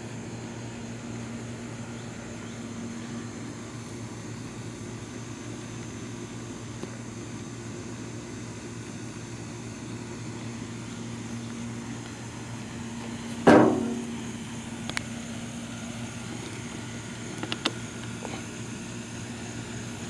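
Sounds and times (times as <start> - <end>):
engine idling: 0.0 - 20.0
engine throttle blip: 13.5 - 14.4.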